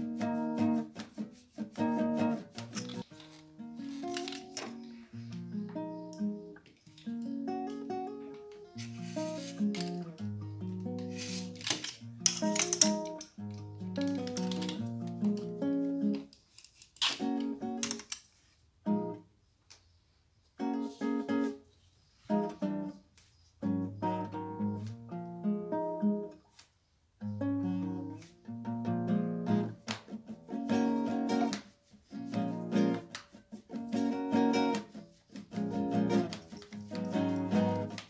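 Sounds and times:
acoustic guitar picking: 0.0s - 16.2s, 27.2s - 38.0s.

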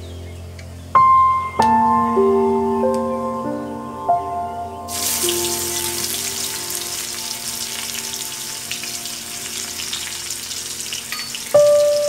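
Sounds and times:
background music: 0.8s - 12.0s
onions sizzling in hot oil: 4.9s - 12.0s.

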